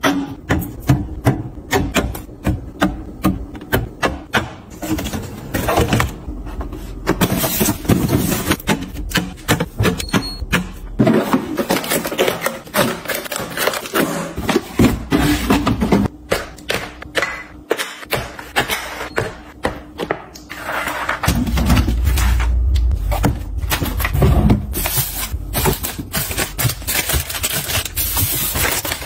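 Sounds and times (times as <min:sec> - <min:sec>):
plastic rustling: 0:24.7 - 0:29.0.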